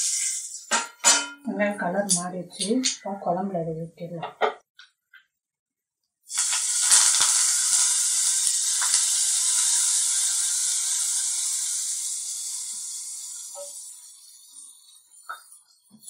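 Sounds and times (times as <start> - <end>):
hot oil sizzling: 0.0 - 1.2, 6.2 - 16.0.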